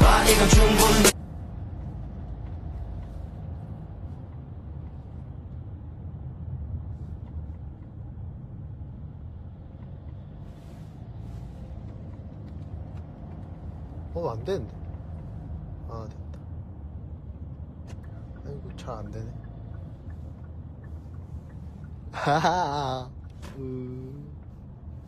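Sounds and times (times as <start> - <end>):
pop music: 0.0 - 1.2
low steady rumble: 0.0 - 25.0
faint ticks: 17.8 - 22.2.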